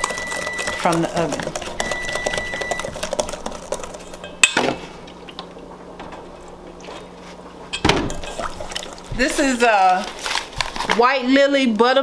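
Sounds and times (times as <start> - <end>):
whisk clinking in metal bowl: 0.0 - 4.6.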